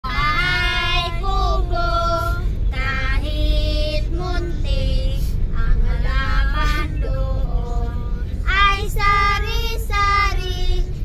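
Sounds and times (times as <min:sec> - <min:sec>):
car engine rumble: 0:00.0 - 0:11.0.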